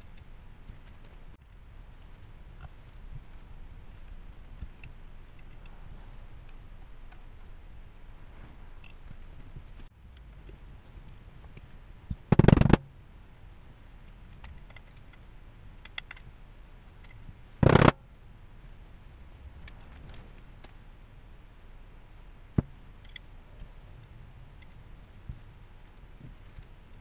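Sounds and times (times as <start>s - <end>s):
small metal clicks and taps: 14.0s - 16.3s.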